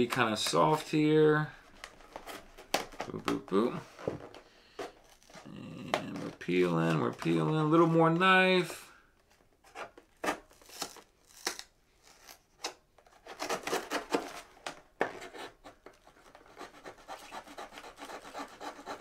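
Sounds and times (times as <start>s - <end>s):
paperboard scraping and tearing: 9.7s - 19.0s
knife prying cardboard: 13.3s - 14.4s.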